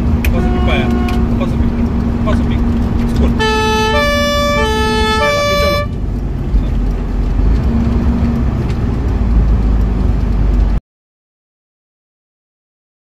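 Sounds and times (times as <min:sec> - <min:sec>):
truck engine and road rumble: 0:00.0 - 0:10.8
two-tone fire truck siren: 0:00.3 - 0:01.5, 0:03.4 - 0:06.0.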